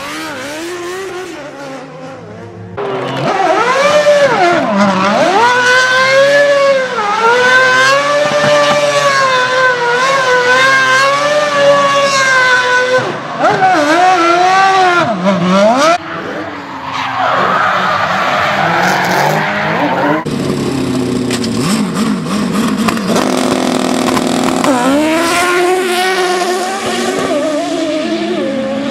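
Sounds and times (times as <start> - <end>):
car engine revving hard: 21.6 - 28.9.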